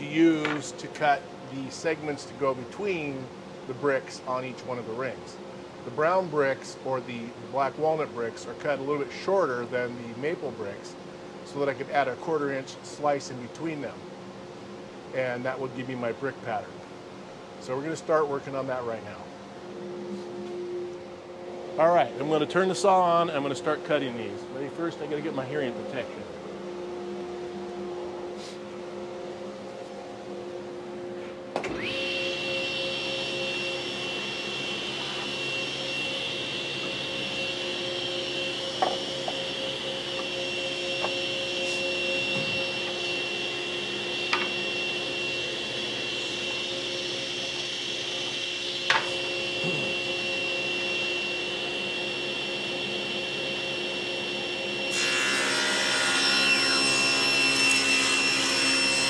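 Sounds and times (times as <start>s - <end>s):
table saw running with high whine: 0.0s - 0.9s, 21.2s - 59.0s.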